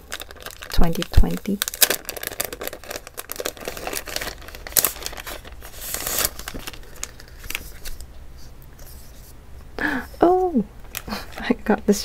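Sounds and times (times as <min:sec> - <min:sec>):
plastic sleeve crinkling: 0:00.0 - 0:08.1.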